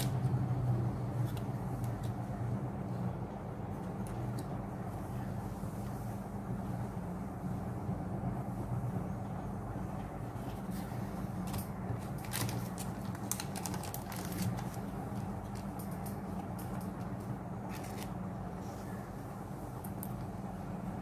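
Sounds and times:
steady low hum: 0:00.0 - 0:21.0
cards clicking and rustling: 0:10.6 - 0:18.2.

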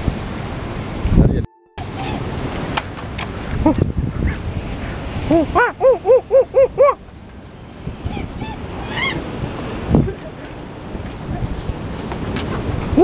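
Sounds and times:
wind buffeting microphone: 0:00.0 - 0:13.0
surf washing against rocks: 0:07.2 - 0:13.0.

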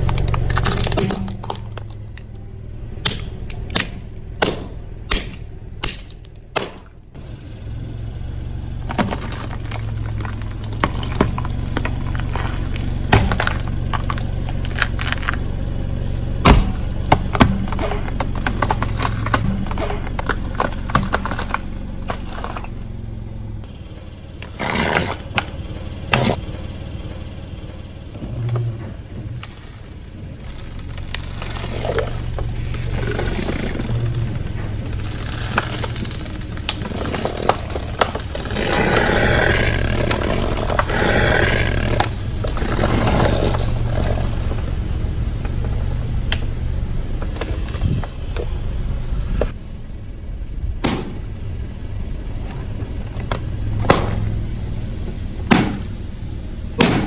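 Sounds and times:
tyre crushing brittle objects: 0:00.0 - 0:07.2, 0:08.8 - 0:23.0, 0:30.4 - 0:44.7
low car engine hum: 0:00.0 - 0:57.0.

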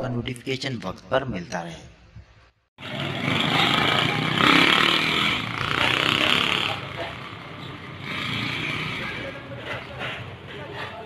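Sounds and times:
motorbike engine running: 0:02.8 - 0:10.8
people's voices: 0:05.6 - 0:11.0.

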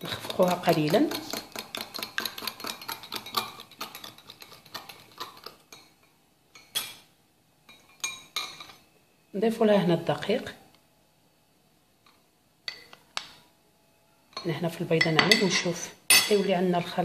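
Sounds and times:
utensil clinking in glass bowl: 0:00.0 - 0:06.0.

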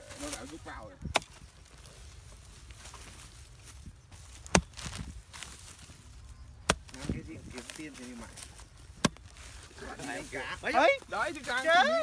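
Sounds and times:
digging tool striking earth: 0:01.0 - 0:01.6, 0:04.2 - 0:05.7, 0:06.6 - 0:07.7, 0:08.8 - 0:09.6.

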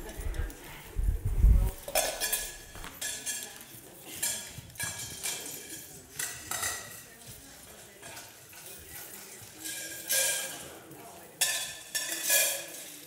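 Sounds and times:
children's footsteps: 0:00.0 - 0:03.0.

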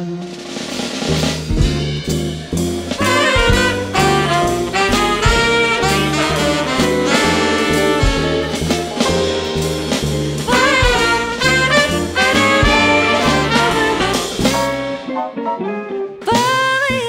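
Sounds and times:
alto saxophone: 0:00.0 - 0:01.0, 0:02.9 - 0:09.0, 0:10.4 - 0:15.2
trumpet melody: 0:00.0 - 0:09.6, 0:10.5 - 0:16.5
drums: 0:00.0 - 0:17.0
live jazz band playing: 0:00.0 - 0:17.0
upright bass: 0:00.8 - 0:17.0.

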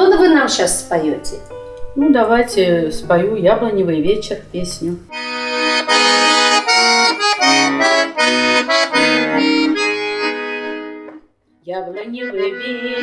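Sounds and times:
instrumental melody over chords: 0:05.1 - 0:11.3, 0:12.0 - 0:13.0.

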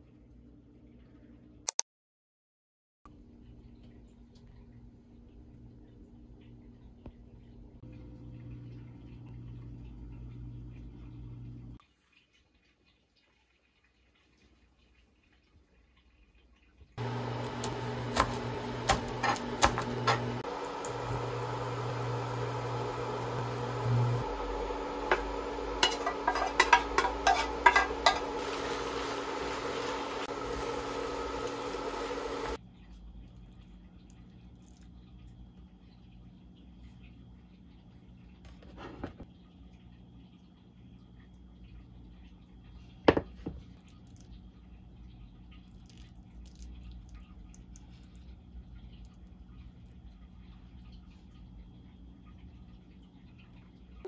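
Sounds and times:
light hum: 0:03.2 - 0:11.8, 0:17.0 - 0:54.0
frying sizzle: 0:07.6 - 0:33.2
wooden spoon knocking frying pan: 0:25.0 - 0:28.6.

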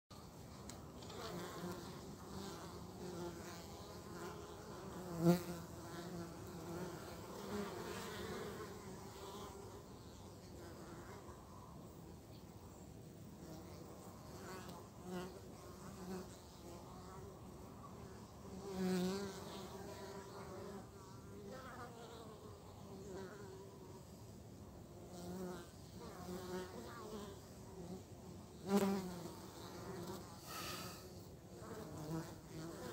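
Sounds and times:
honeybees buzzing: 0:00.6 - 0:11.8, 0:24.9 - 0:32.9.

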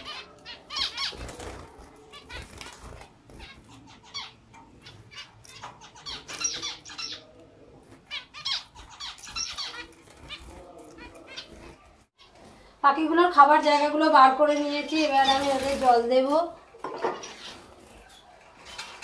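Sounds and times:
finches chirping: 0:00.0 - 0:07.3, 0:08.1 - 0:10.0.

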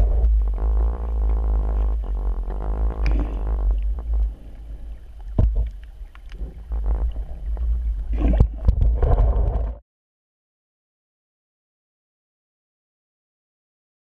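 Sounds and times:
muffled underwater rumble: 0:00.0 - 0:09.8
small clicks: 0:05.0 - 0:07.7.

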